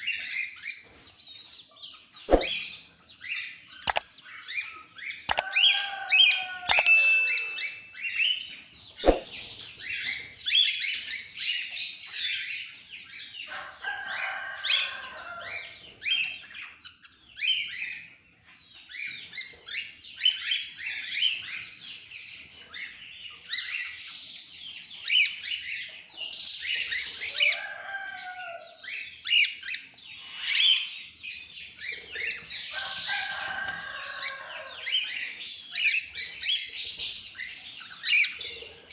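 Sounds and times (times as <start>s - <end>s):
sharp click: 6.7s - 7.3s, 9.0s - 9.2s
wings flapping: 9.0s - 9.3s
cockatiels chirping and calling: 15.5s - 27.9s, 28.8s - 38.9s.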